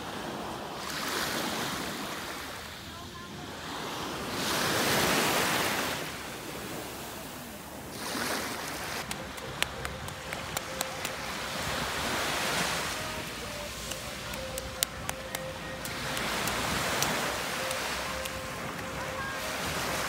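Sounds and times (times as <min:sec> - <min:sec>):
small waves washing up sand: 0:00.0 - 0:20.0
sharp little ticks: 0:09.0 - 0:11.2, 0:13.8 - 0:18.9.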